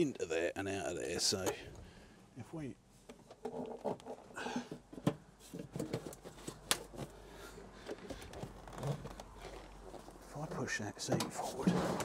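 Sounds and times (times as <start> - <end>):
electrical cables rustling and scraping: 3.0 - 12.0.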